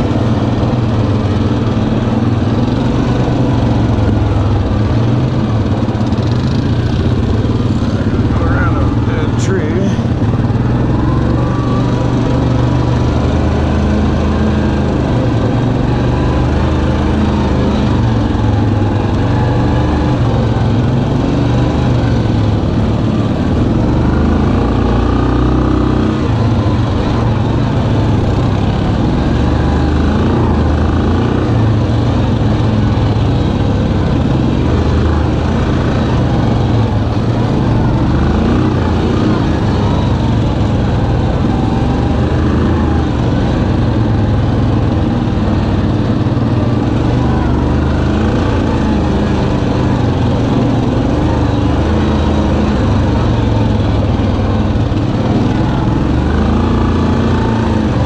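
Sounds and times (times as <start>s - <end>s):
atv engine running: 0.0s - 58.0s.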